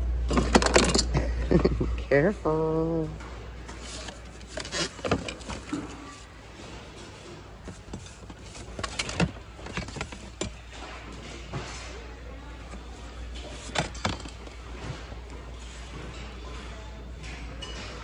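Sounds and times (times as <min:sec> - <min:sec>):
steady background hum: 0:00.0 - 0:18.0
dishes clinking against plastic bin: 0:13.4 - 0:15.0.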